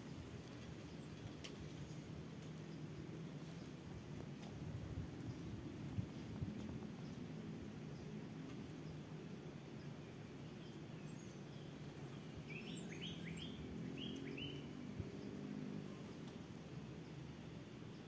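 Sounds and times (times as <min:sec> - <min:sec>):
low outdoor background rumble: 0:00.0 - 0:18.0
bird chirping: 0:09.8 - 0:15.4.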